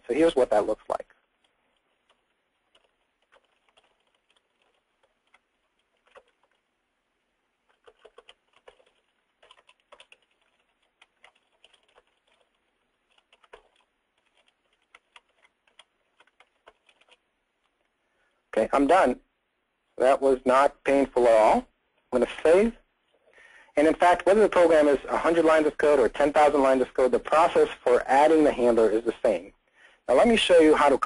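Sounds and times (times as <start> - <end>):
computer keyboard typing: 1.2 - 6.7, 7.6 - 17.8.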